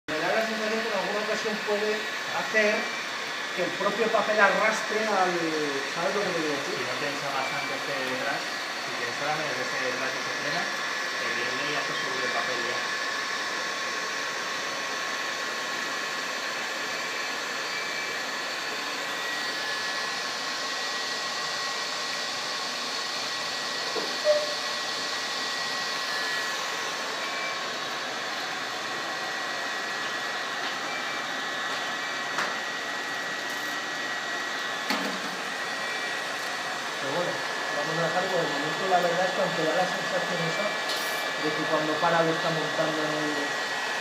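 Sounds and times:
thin whining tones: 23.9s - 24.8s.

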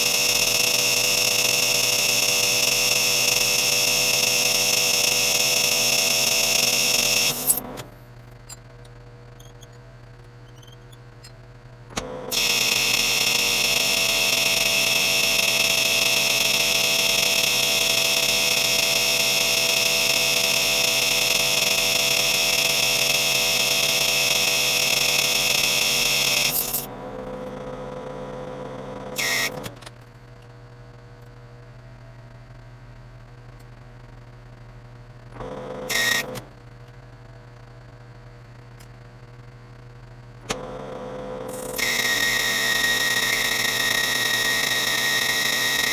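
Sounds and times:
lathe cutting with shrill whine: 41.8s - 45.9s.

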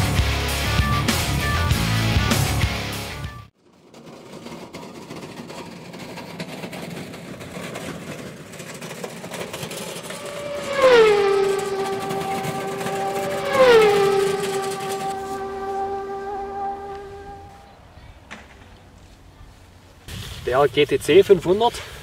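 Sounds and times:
trolley wheels rolling on gravel: 3.6s - 20.1s
sliding musical tones: 5.9s - 19.7s.

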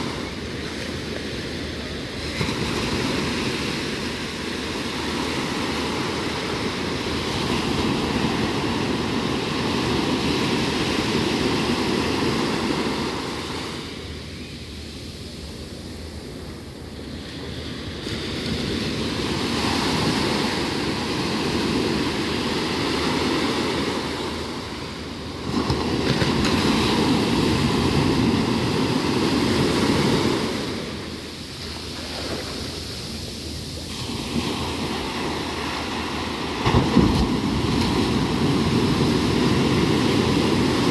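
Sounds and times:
sea surf washing on shore: 0.0s - 40.9s.

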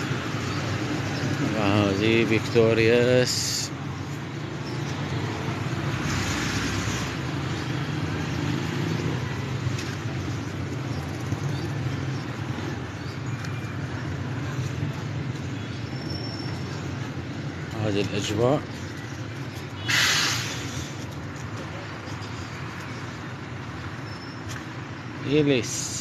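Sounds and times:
road traffic noise: 0.0s - 26.0s
rushing hiss: 19.8s - 21.0s.

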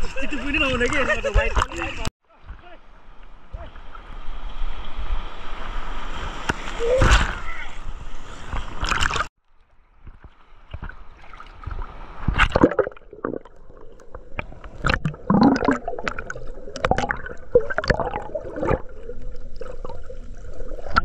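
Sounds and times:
water splashes: 0.4s - 21.0s
seawater sloshing and gurgling: 10.0s - 21.0s.

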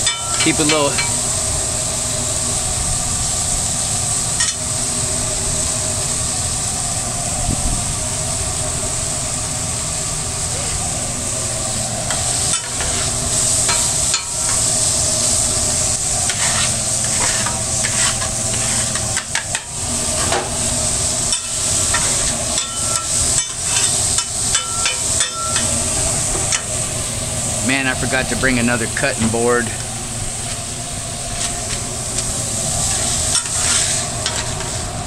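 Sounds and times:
spatulas scraping on griddle: 0.0s - 1.4s, 12.0s - 26.8s, 31.2s - 35.0s
meat sizzling: 0.0s - 35.0s
steady low hum: 0.0s - 35.0s.

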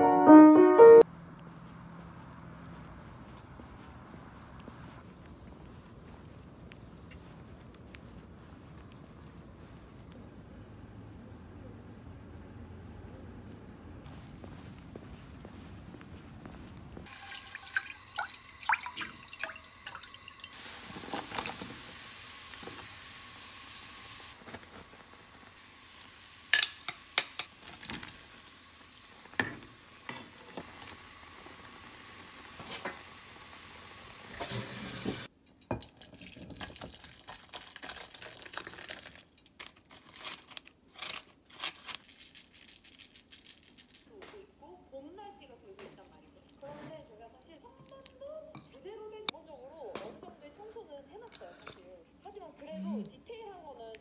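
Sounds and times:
water sounds: 17.0s - 21.8s
soup bubbling in a pot: 17.1s - 23.8s.

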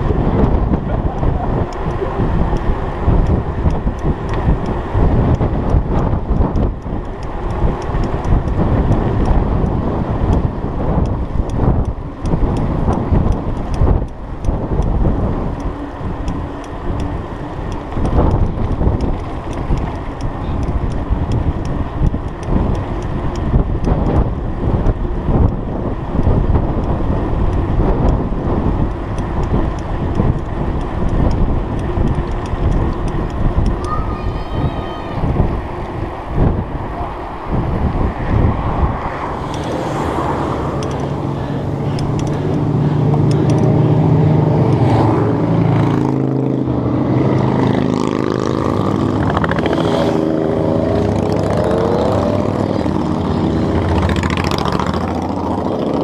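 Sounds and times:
bike tyres on paved road: 0.0s - 56.0s
wind rushing over microphone: 0.0s - 56.0s.

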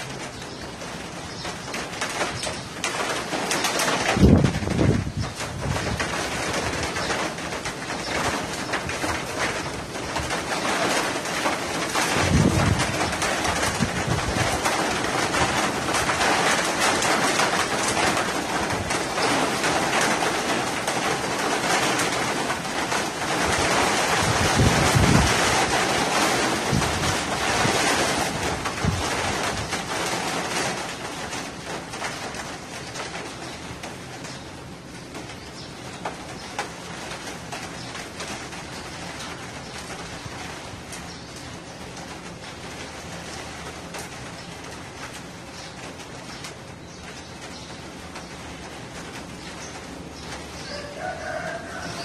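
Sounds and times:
wind buffeting microphone: 0.0s - 31.4s
storm wind rushing: 4.0s - 7.2s, 8.2s - 19.6s, 23.4s - 29.8s.

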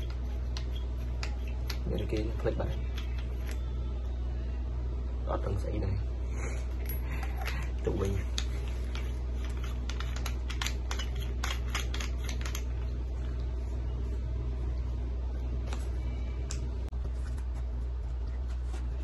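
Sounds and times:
hatchet clicks and rattles: 0.0s - 3.6s, 7.2s - 12.8s
low hum: 0.0s - 19.0s.

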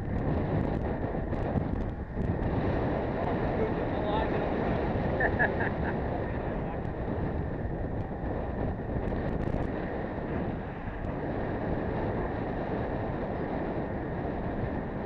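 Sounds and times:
wind rush on microphone: 0.0s - 15.0s.

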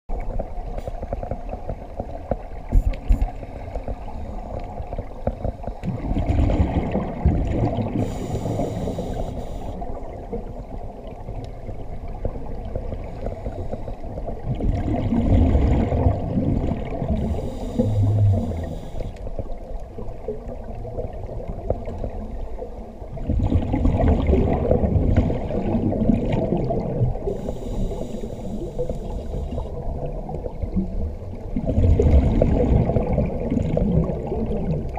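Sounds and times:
gurgling exhaled bubbles: 0.1s - 34.9s
low underwater rumble: 0.1s - 34.9s
regulator inhale hiss: 7.9s - 9.8s, 13.0s - 14.2s, 17.1s - 19.3s, 27.3s - 29.7s.

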